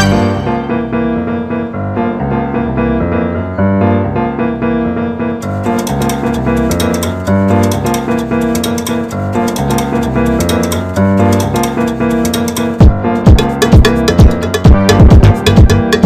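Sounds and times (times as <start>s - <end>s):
keyboard playing quick melody: 0.0s - 1.4s, 5.4s - 16.0s
crisp high ticking rhythm: 5.4s - 16.0s.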